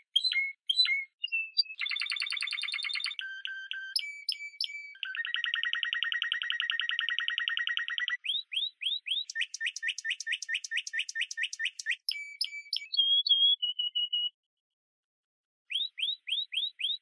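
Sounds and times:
bird-like chirping tones: 0.0s - 14.4s, 15.7s - 17.0s
short whistles: 8.2s - 14.3s.

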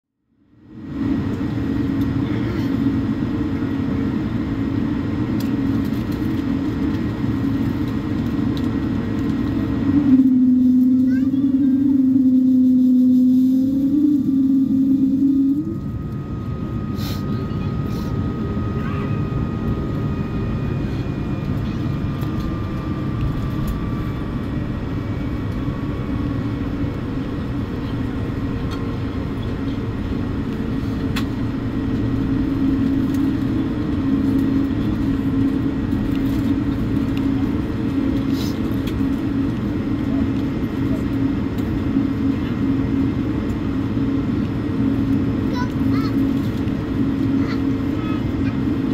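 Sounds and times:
jet cabin rumble and hum: 0.3s - 48.9s
loud steady tone: 9.2s - 40.8s
faint high whine: 9.7s - 37.5s.

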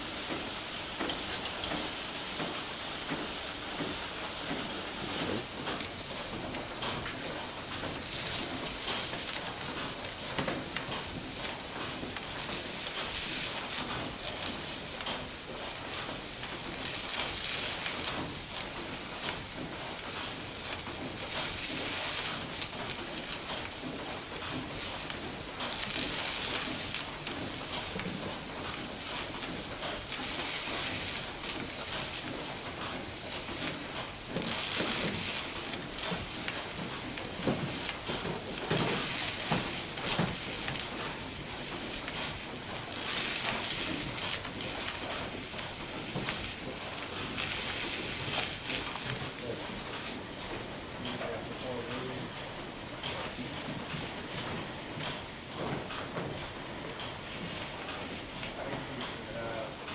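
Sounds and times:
mill machinery hiss and rattle: 0.0s - 59.9s.

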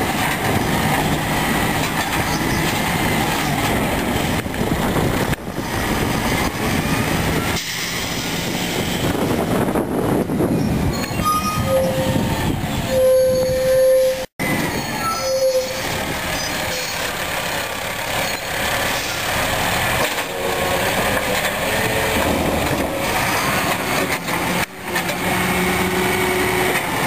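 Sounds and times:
short squeals: 12.8s - 17.1s.

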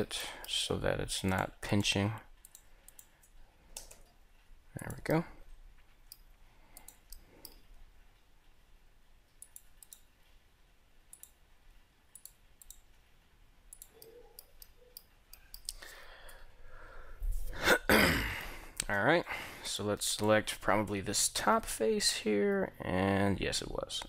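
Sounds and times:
mouse and keyboard clicks: 13.7s - 15.9s.

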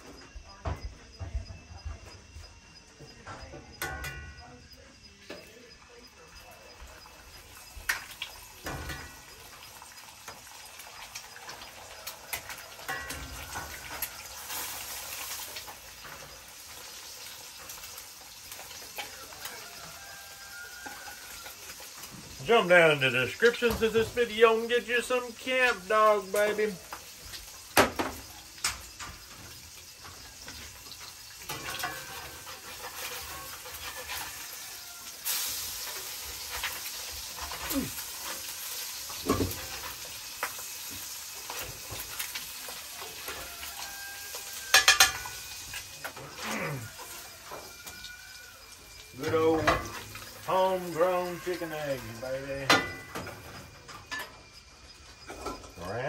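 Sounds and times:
eggs sizzling in a skillet: 3.7s - 56.0s
spatula scraping a pan: 28.9s - 47.9s.

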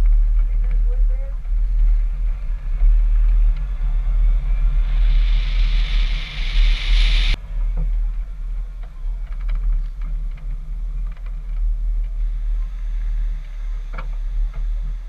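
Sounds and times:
road noise hiss: 0.0s - 15.0s
wind rumble on microphone: 0.0s - 15.0s.

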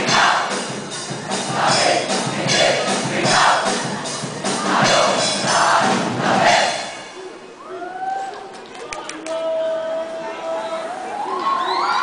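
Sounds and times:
music with a steady beat: 0.0s - 7.0s
crowd chanting in unison: 0.0s - 7.1s.

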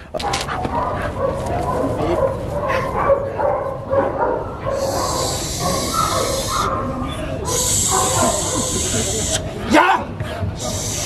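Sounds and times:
steady hiss: 4.8s - 6.6s, 7.5s - 9.5s, 10.6s - 11.0s
dog whining and yipping: 4.8s - 6.9s.

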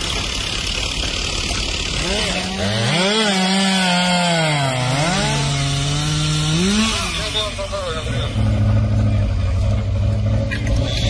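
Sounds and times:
chainsaw cutting wood: 0.0s - 8.0s.

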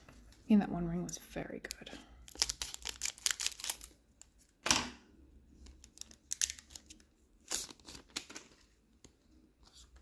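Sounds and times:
foil wrapper ripping: 2.3s - 3.9s
foil wrapper crinkling: 2.3s - 4.0s.

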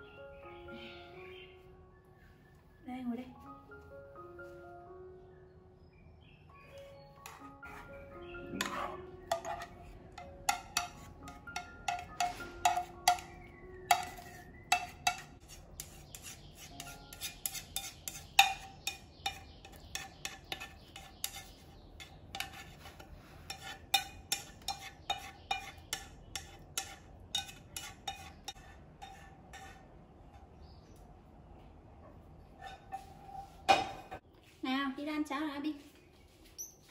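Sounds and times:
utensil scraping a saucepan: 7.2s - 30.0s, 32.6s - 34.1s.

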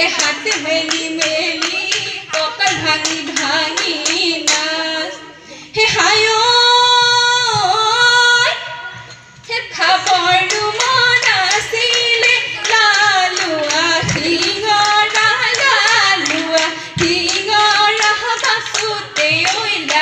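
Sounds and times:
hand clapping: 0.0s - 4.9s, 9.8s - 20.0s
women singing: 0.0s - 20.0s.

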